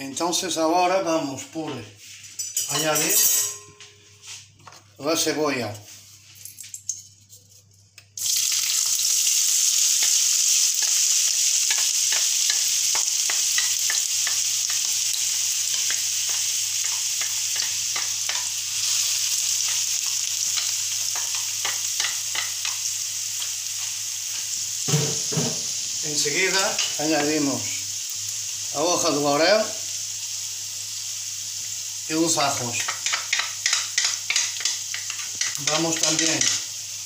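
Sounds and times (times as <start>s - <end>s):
onion sizzling in hot oil: 8.2s - 37.0s.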